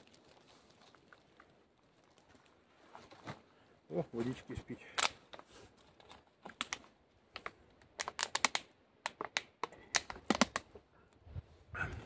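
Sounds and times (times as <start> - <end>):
gear clicking and crinkling: 0.0 - 3.2, 5.0 - 10.8.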